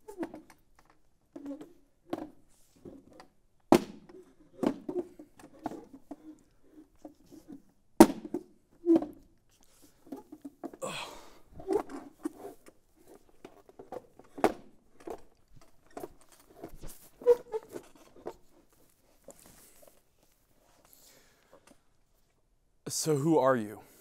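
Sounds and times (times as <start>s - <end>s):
plastic chair knocks and clicks: 3.7s - 6.0s, 7.2s - 9.2s
chair scrape or rustle: 4.2s - 7.7s, 8.8s - 21.2s.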